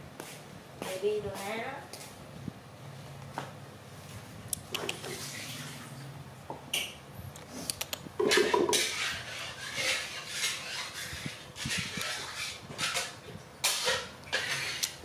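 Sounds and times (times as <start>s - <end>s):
objects scraping and rubbing: 7.4s - 15.0s.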